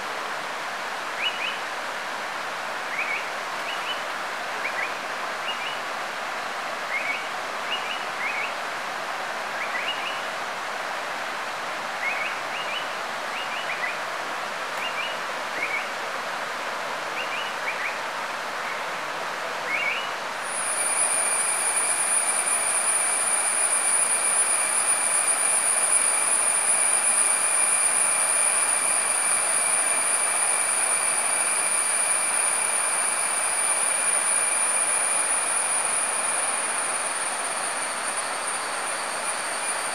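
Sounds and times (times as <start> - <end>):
forest stream rushing: 0.0 - 39.9
high-pitched whine: 19.8 - 39.9.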